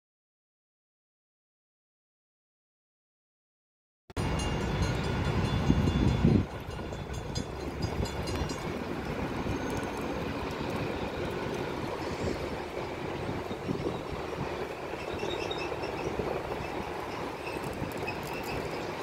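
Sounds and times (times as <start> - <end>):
distant light rail train rumble: 4.2 - 19.0.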